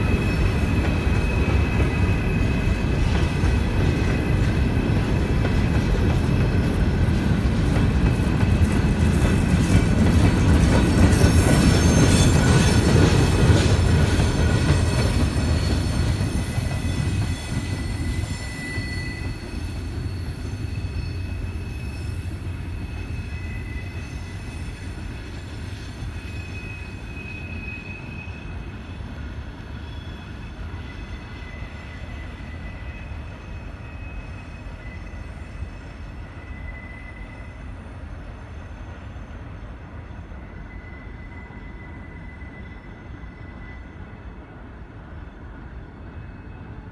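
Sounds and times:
train wheels rumbling on rail: 0:00.0 - 0:46.9
thin wheel squeals: 0:09.6 - 0:13.4, 0:14.6 - 0:28.8, 0:29.7 - 0:37.7, 0:40.3 - 0:44.2.

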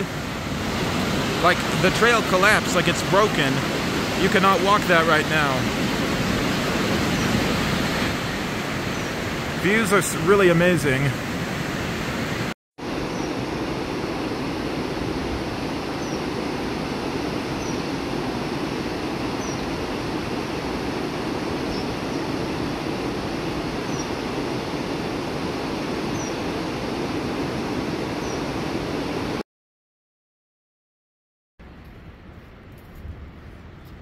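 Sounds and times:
river rushing over stones: 0:00.0 - 0:13.0.

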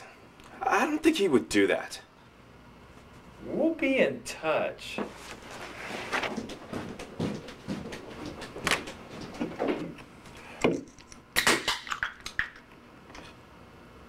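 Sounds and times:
drink can cracked open: 0:11.4 - 0:12.5.

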